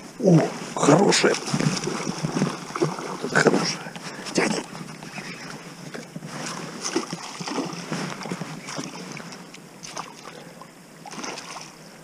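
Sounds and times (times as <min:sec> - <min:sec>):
fish thrashing in water: 0:00.8 - 0:04.2, 0:06.4 - 0:11.8.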